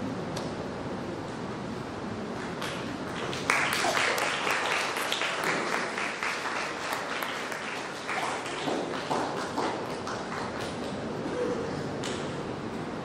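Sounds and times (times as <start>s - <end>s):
audience applauding: 2.4s - 11.2s.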